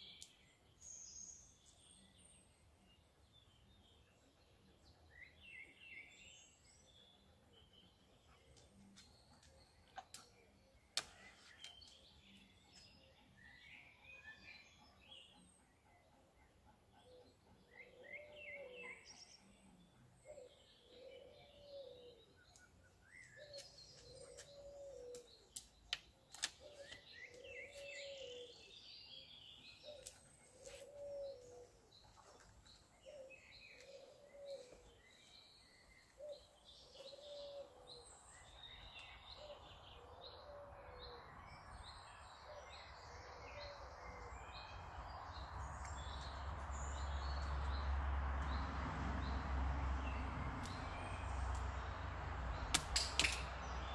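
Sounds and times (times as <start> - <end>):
small birds chirping: 16.4 - 53.9
dove cooing: 29.9 - 31.7.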